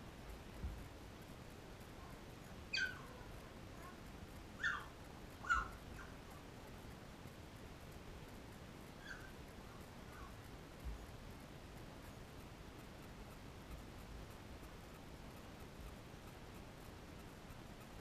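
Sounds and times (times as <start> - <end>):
puppy squeaking whimpers: 2.7 - 3.1, 4.6 - 5.7.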